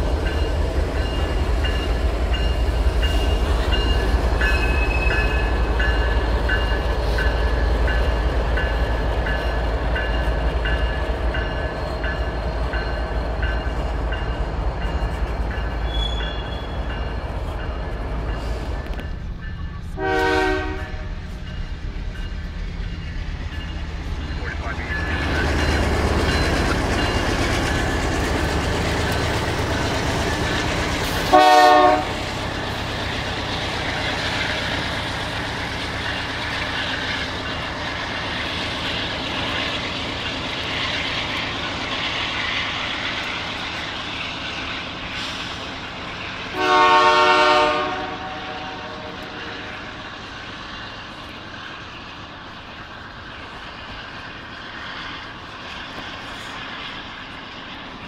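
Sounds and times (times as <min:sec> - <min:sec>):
passing train rumble: 0:00.0 - 0:58.0
locomotive air horn blasts: 0:20.0 - 0:21.1, 0:31.2 - 0:32.2, 0:46.5 - 0:49.7.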